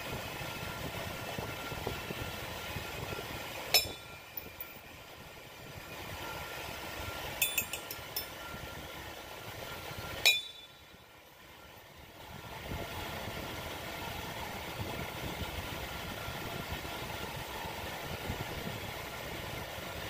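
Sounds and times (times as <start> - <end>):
metal pieces clinking: 7.4 - 8.3.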